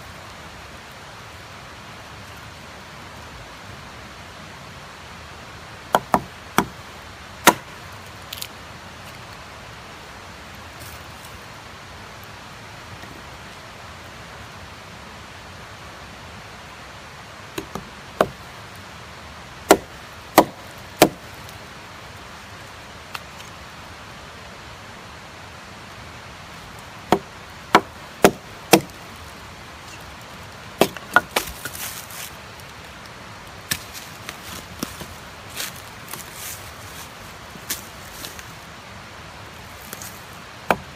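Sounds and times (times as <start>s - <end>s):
hatchet chopping wood: 5.9s - 6.8s, 7.4s - 7.8s, 17.6s - 18.4s, 19.7s - 21.2s, 27.1s - 29.0s, 30.8s - 31.8s, 40.7s - 40.9s
rustling: 28.2s - 38.6s.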